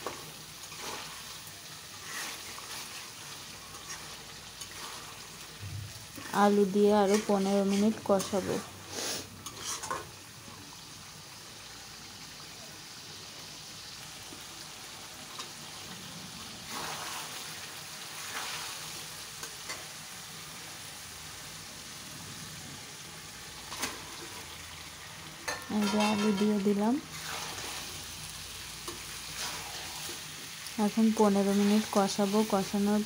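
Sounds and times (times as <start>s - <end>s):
metal spatula scraping: 0.0s - 10.2s, 25.5s - 28.0s, 28.9s - 30.2s, 31.3s - 32.6s
curry sizzling in a pan: 0.0s - 33.0s.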